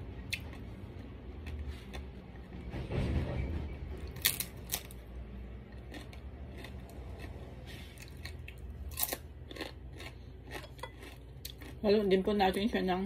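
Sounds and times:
chips crunching and chewing: 0.1 - 2.4, 4.2 - 5.0, 5.6 - 12.3.

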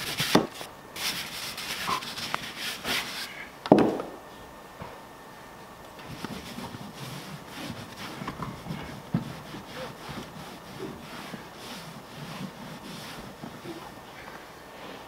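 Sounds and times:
rubbing strokes scrubbing: 6.0 - 14.0.

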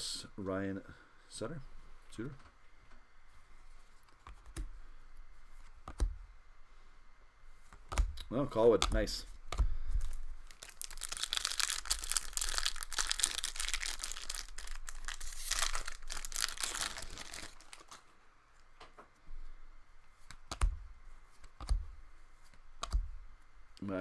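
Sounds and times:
cards being handled: 8.8 - 18.1
foil wrapper tearing and crinkling: 10.4 - 18.0
sharp taps of cards: 20.3 - 20.8, 21.4 - 21.9, 22.8 - 23.2.

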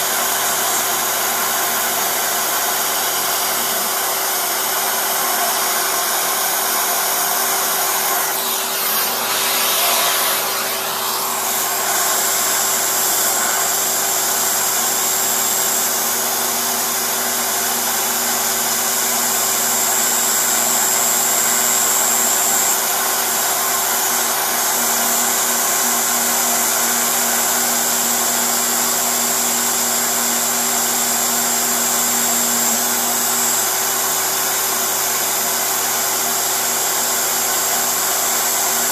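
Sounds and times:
end mill cutting plastic: 0.0 - 38.9
router spindle whine: 0.0 - 38.9.

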